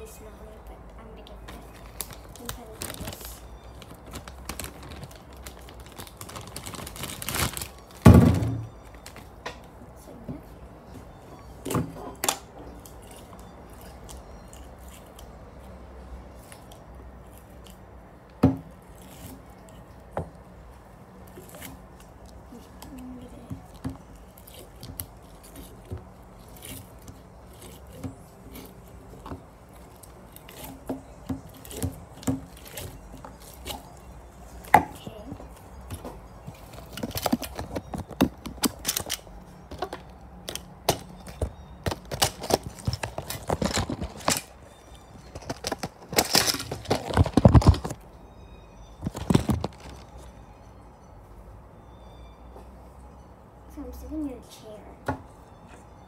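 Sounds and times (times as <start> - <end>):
hands handling package and slime: 0.0 - 11.7, 21.3 - 48.1, 48.9 - 50.3
sharp clicks and crinkles: 1.2 - 8.1, 35.6 - 48.0, 49.0 - 50.3.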